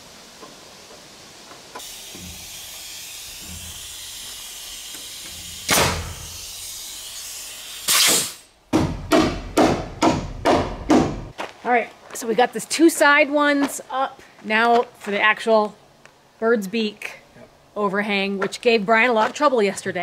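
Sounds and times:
steady air hiss: 0.0s - 8.6s
pneumatic nailer shots: 1.7s - 11.2s.

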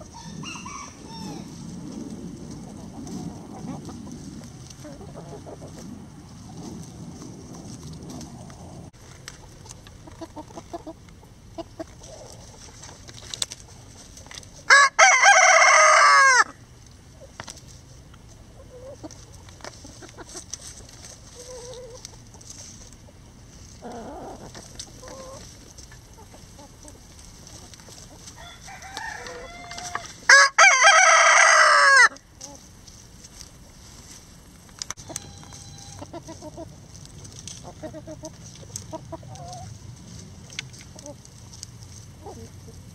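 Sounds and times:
rooster crowing: 0.0s - 1.6s, 14.7s - 16.6s, 28.3s - 32.2s, 35.0s - 36.2s
hens clucking softly: 0.0s - 7.0s, 7.6s - 14.5s, 17.1s - 30.2s, 35.0s - 42.9s.

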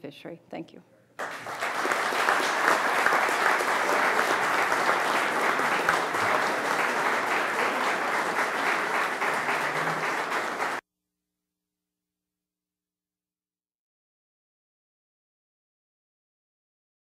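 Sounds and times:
audience applauding: 1.2s - 10.8s.

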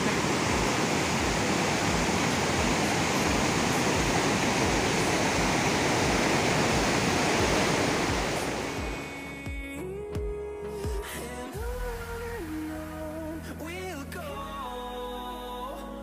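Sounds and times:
stream rushing over rocks: 0.0s - 9.8s.

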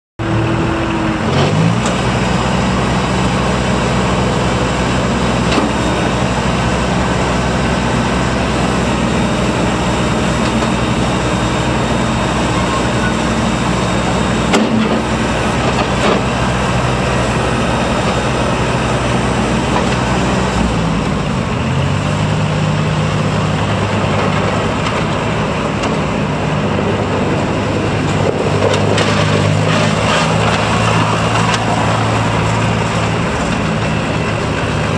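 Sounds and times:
tractor diesel engine running: 0.2s - 34.9s.

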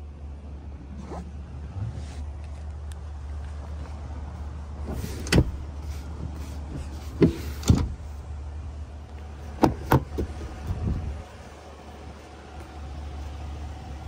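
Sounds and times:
knocks and clicks on truck cab: 9.6s - 10.4s.

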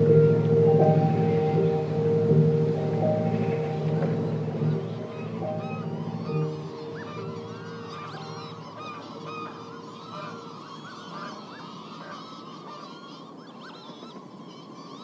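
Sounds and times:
sustained low tones: 0.0s - 10.7s
birds calling in chorus: 2.9s - 15.0s.

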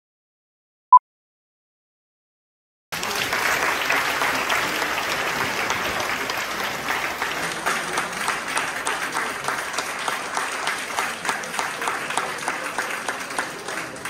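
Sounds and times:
audience applauding: 3.0s - 14.0s.

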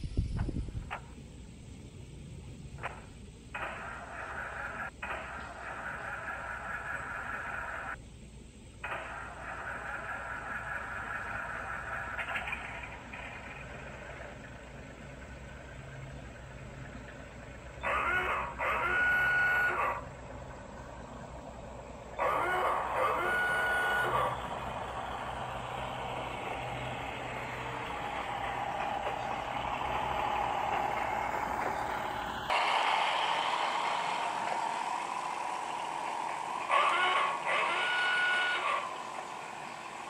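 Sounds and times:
low hum of car running: 0.0s - 40.0s
rising whine: 14.9s - 40.0s
small car horn honking: 36.7s - 38.8s.

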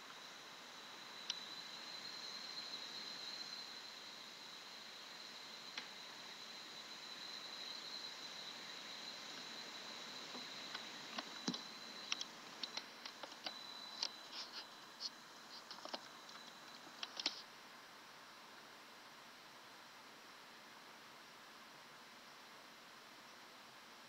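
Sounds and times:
faint high whine: 0.0s - 24.0s
soft clicks and ticks: 10.3s - 17.4s.

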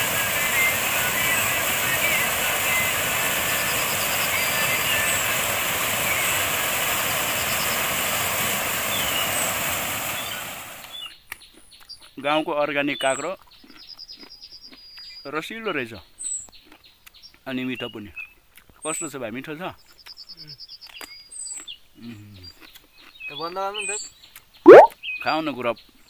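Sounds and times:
water rushing down cascade: 0.0s - 10.9s
faint bird chirps: 23.3s - 25.3s.

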